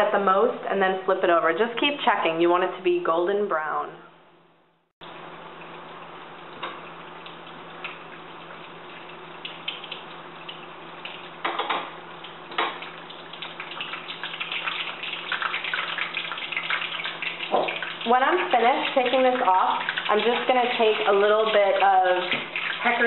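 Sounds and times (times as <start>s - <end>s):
food deep-frying in hot oil: 5.0s - 23.0s.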